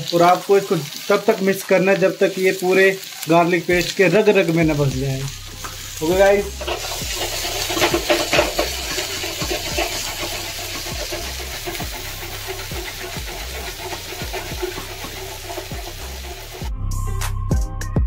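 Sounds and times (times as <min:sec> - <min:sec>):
vegetables sizzling in hot oil: 0:00.0 - 0:16.7
music: 0:03.7 - 0:18.0
ladle clinking and scraping pan: 0:06.5 - 0:16.6.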